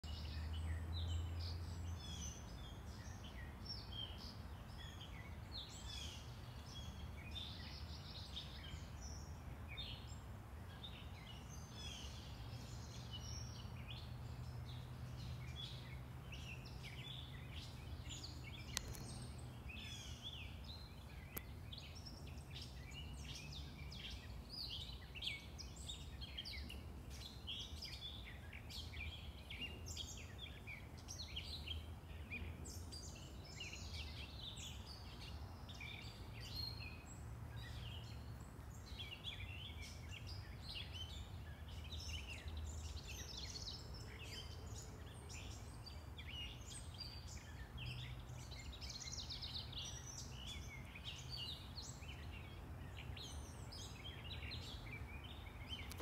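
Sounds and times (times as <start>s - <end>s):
distant road traffic rumble: 0.0s - 56.0s
songbirds chirping and singing: 0.0s - 56.0s.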